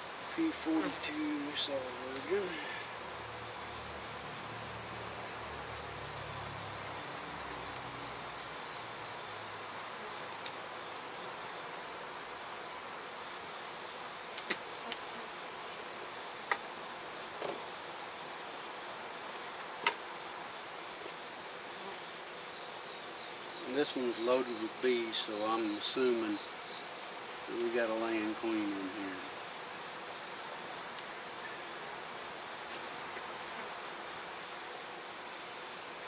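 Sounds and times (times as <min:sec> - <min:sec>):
insects trilling: 0:00.0 - 0:36.0
faint small clicks: 0:14.3 - 0:15.0.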